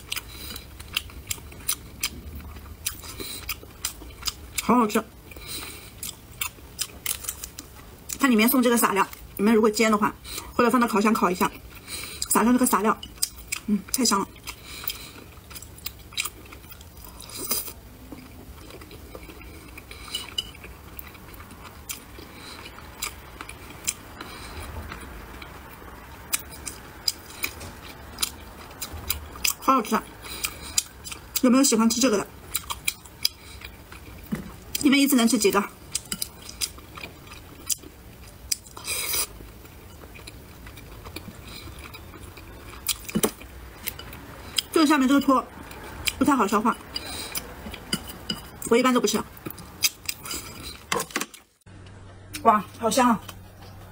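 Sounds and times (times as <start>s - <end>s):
quiet chewing: 0.0s - 8.2s, 13.0s - 29.6s, 30.2s - 31.5s, 32.5s - 34.8s, 35.9s - 44.8s.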